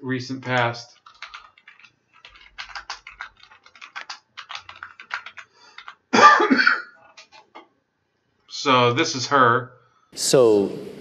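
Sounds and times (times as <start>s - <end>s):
man clearing his throat: 6.2s - 7.0s.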